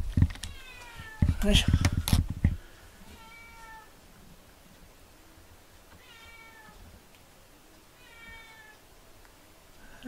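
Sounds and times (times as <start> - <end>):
cat meowing: 0.5 - 1.3, 3.1 - 3.9, 6.0 - 6.8, 8.0 - 8.8.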